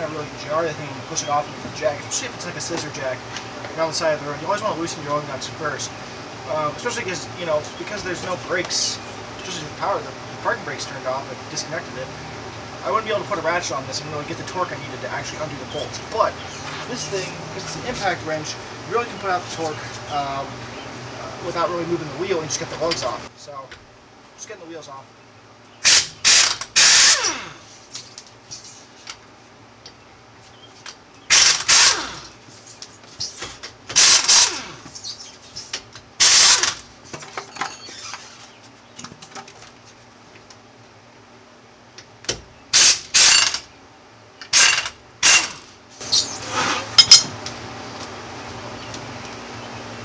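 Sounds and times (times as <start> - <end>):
air impact wrench hammering: 25.8 - 27.6, 31.3 - 32.4, 33.9 - 34.9, 36.2 - 36.8, 42.7 - 43.7, 44.5 - 47.3.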